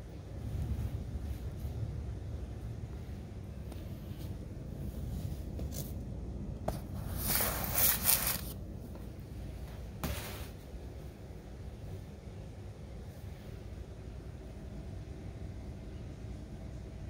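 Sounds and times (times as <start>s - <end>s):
low steady hum: 0.0s - 17.0s
scratchy rustling: 6.7s - 8.6s.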